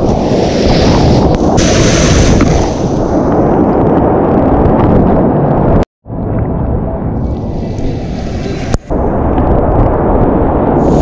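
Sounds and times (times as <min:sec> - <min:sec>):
hiss of spray: 0:01.6 - 0:02.9.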